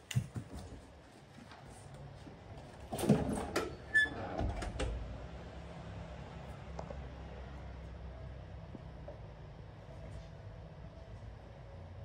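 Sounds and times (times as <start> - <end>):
door squeak: 3.0 - 4.8.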